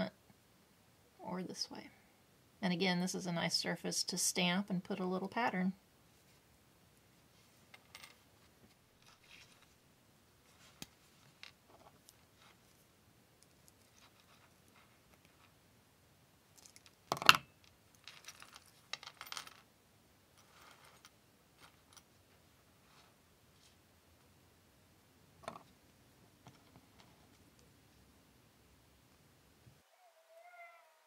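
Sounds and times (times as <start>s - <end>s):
small metal chain links clinking: 16.6s - 19.6s.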